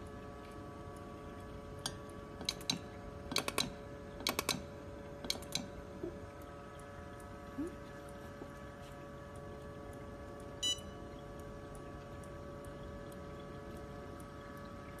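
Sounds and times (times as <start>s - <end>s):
short electronic beep: 10.6s - 11.0s.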